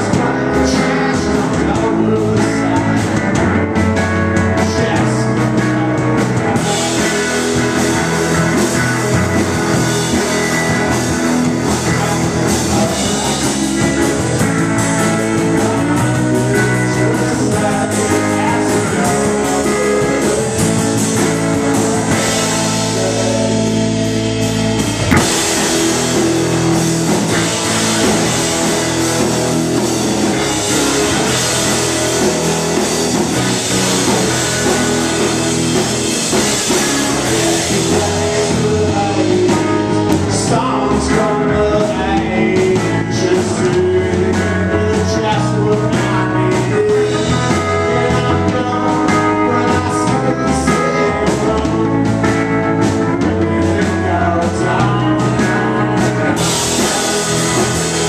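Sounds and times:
drum kit: 0:00.0 - 0:58.0
electric bass: 0:00.0 - 0:58.0
electric guitars: 0:00.0 - 0:58.0.

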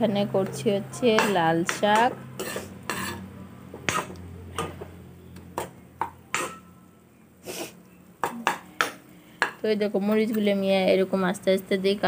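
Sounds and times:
metal spatula scraping a pan: 0:01.0 - 0:03.3, 0:03.9 - 0:04.8, 0:06.3 - 0:06.7.

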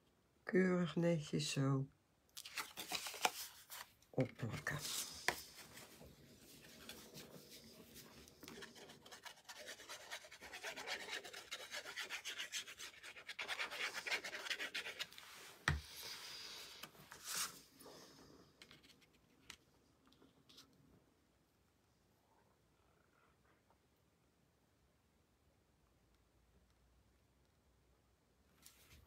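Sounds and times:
paper rubbing: 0:04.5 - 0:17.6
glue bottle scratching on card: 0:08.5 - 0:15.2.

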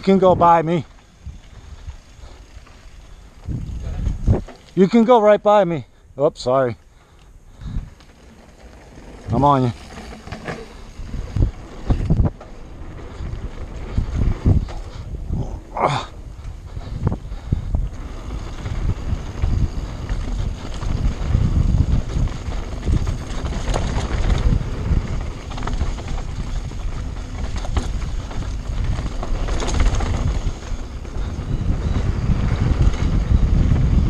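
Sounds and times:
wind buffeting microphone: 0:00.0 - 0:05.2, 0:07.4 - 0:34.0
bike rattling: 0:00.0 - 0:34.0
tyres rumbling on dirt: 0:07.6 - 0:34.0.

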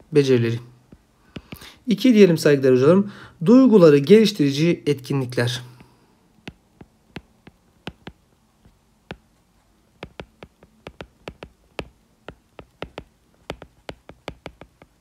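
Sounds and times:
stylus tapping on a tablet: 0:00.9 - 0:01.7, 0:05.8 - 0:09.4, 0:10.0 - 0:15.0.

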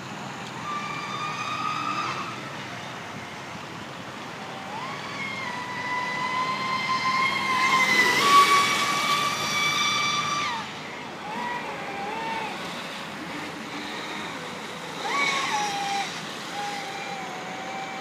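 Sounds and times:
toy speedboat motor whining: 0:00.0 - 0:18.0.

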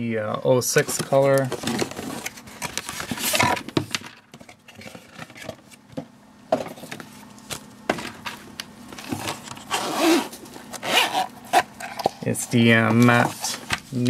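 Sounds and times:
cardboard and paper rustling: 0:00.7 - 0:06.0, 0:11.5 - 0:14.0.

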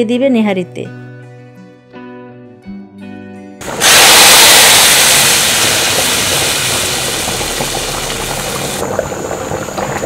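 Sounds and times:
hot oil sizzling: 0:03.6 - 0:10.0
pot bubbling with small pops: 0:05.9 - 0:10.0.

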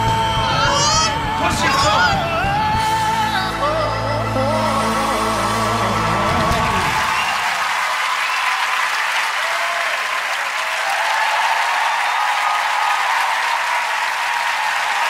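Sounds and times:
audience applauding: 0:05.6 - 0:15.0
voices cheering: 0:05.9 - 0:15.0.

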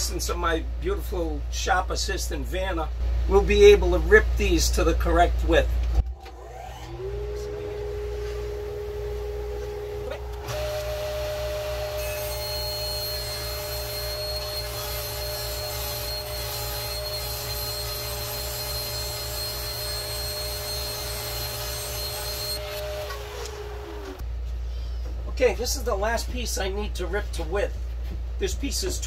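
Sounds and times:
table saw motor: 0:06.0 - 0:24.2
dust collector motor: 0:06.1 - 0:24.2.

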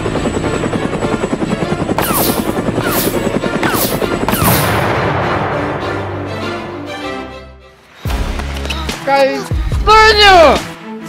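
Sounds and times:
helicopter rotor chopping: 0:00.0 - 0:04.9
music: 0:00.0 - 0:11.0.

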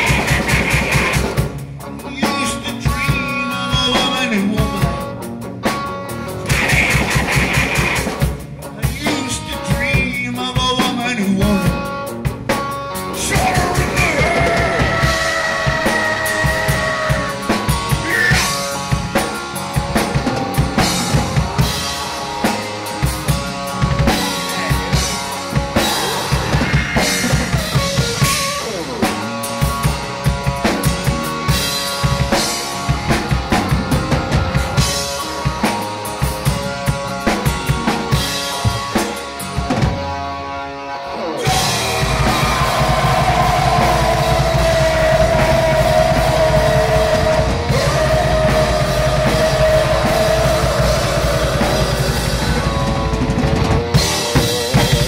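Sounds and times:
drum kit beat: 0:00.0 - 0:40.2, 0:41.4 - 0:55.0
hard rock band playing: 0:00.0 - 0:55.0.

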